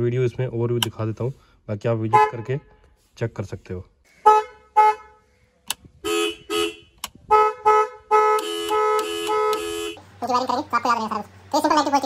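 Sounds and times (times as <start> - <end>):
car horn honks: 2.1 - 2.8, 4.1 - 5.3, 6.0 - 10.0
switch clicks: 5.6 - 5.9, 7.0 - 7.2.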